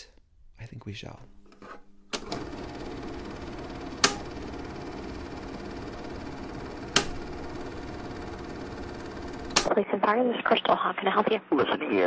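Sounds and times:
phone line hiss and hum: 2.2 - 9.7
sharp click: 4.0 - 4.2, 6.9 - 7.2.

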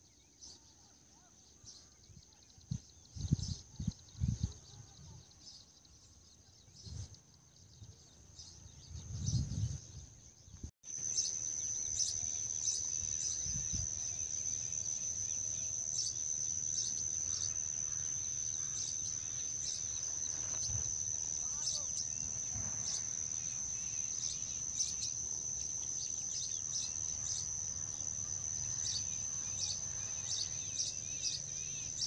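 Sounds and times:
insects trilling: 10.9 - 32.0.

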